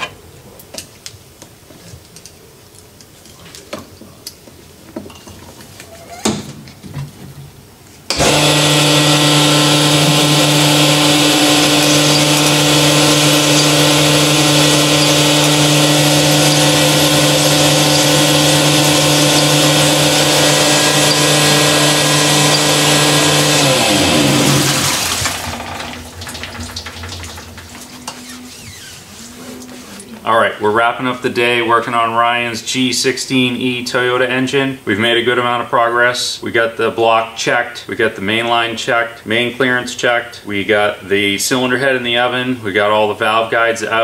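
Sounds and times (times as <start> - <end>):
motor-driven brush hone spinning: 8.1 - 26.3.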